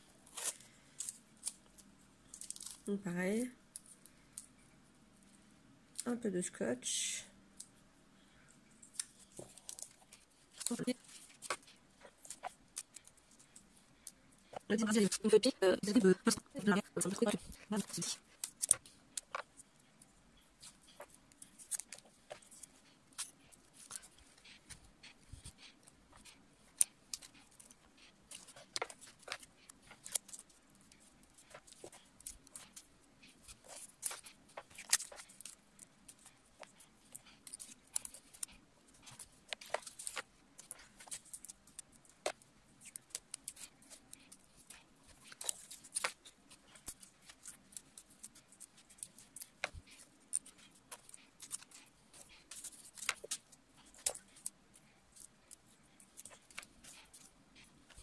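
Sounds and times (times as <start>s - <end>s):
paper and tape crackles: 0.0s - 4.5s, 8.8s - 58.0s
scissors snipping: 20.6s - 58.0s.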